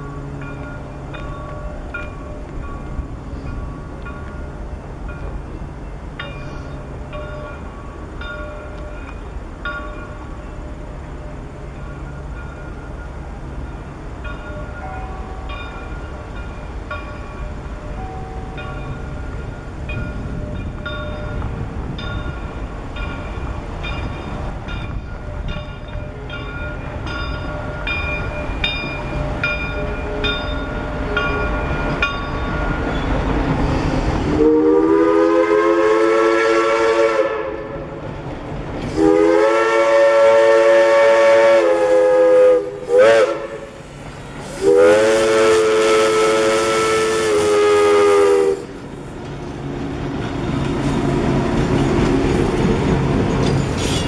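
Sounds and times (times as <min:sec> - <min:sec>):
passing train rumble: 0:00.0 - 0:54.0
steam whistle blasts: 0:34.3 - 0:37.8, 0:38.9 - 0:43.8, 0:44.4 - 0:48.7.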